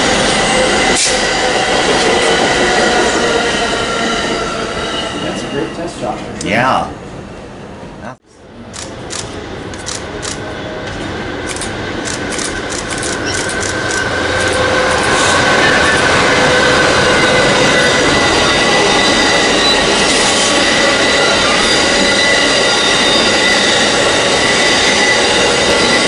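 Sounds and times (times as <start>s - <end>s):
train rumbling past: 0.0s - 26.0s
wheels clicking over rail joints: 11.5s - 15.2s
high wheel squealing: 11.6s - 26.0s.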